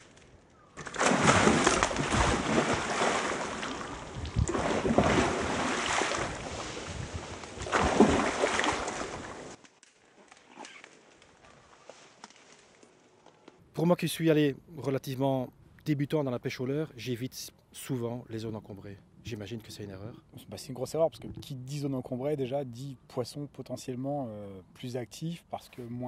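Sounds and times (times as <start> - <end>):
fish splashing in water: 0.8 - 9.6.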